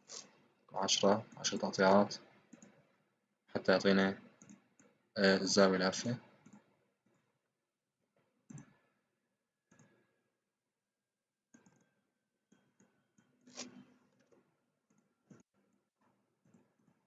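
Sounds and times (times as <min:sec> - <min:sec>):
computer mouse clicks: 0:01.0 - 0:02.8, 0:04.2 - 0:05.0, 0:06.4 - 0:07.3, 0:08.5 - 0:08.9, 0:09.7 - 0:10.1, 0:11.5 - 0:15.8.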